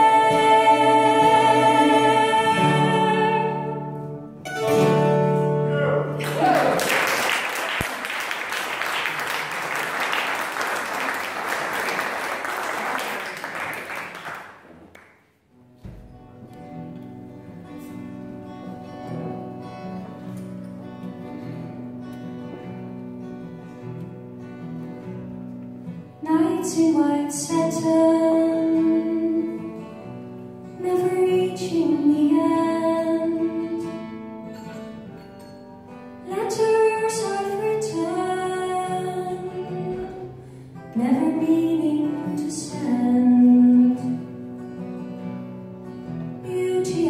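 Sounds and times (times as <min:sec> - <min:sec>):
woman singing: 0:00.0 - 0:04.1, 0:26.2 - 0:29.9, 0:30.7 - 0:34.2, 0:36.2 - 0:44.4, 0:46.4 - 0:47.0
plucked string instrument: 0:00.0 - 0:06.2
acoustic guitar: 0:00.0 - 0:47.0
audience applauding: 0:06.2 - 0:15.2.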